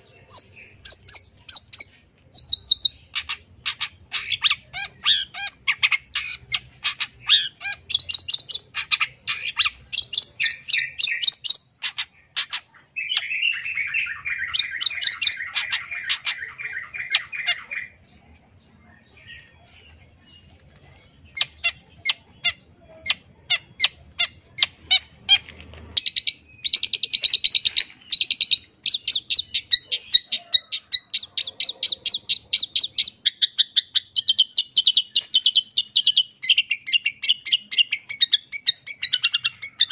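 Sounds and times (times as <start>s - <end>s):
bird singing varied song: 0.0s - 39.9s.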